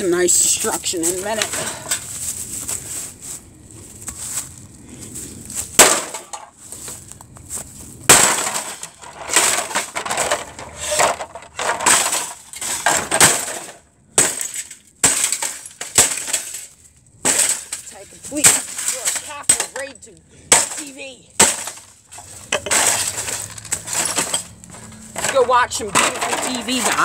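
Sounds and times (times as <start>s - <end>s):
television being smashed: 5.7s - 6.5s, 8.0s - 19.9s, 20.5s - 27.0s
glass breaking: 5.8s - 6.5s, 8.1s - 27.0s.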